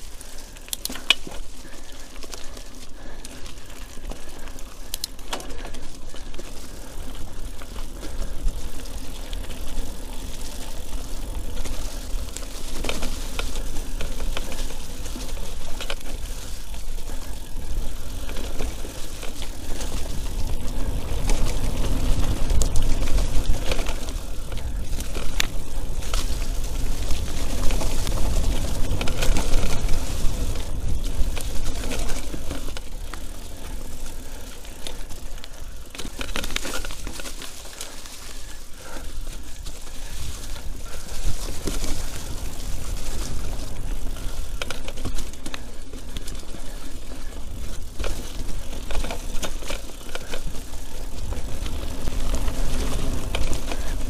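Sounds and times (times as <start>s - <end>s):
bike chain and frame rattling: 0.0s - 54.0s
wind rumble on microphone: 7.4s - 35.0s, 39.1s - 54.0s.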